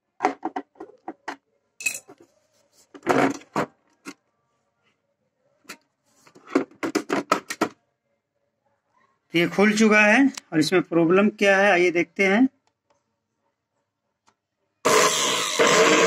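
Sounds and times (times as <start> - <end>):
plastic and metal clicks and knocks: 0.2 - 1.5, 5.6 - 7.8
plastic clatter: 0.2 - 1.5.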